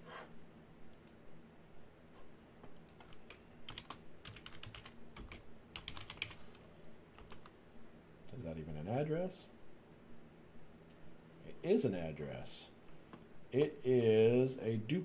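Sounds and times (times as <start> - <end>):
typing on computer keyboard: 2.8 - 6.5, 7.2 - 7.5.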